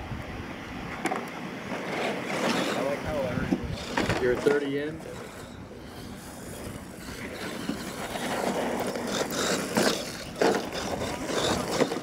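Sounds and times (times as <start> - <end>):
toy truck motor and tyres on dirt: 0.9 - 12.0.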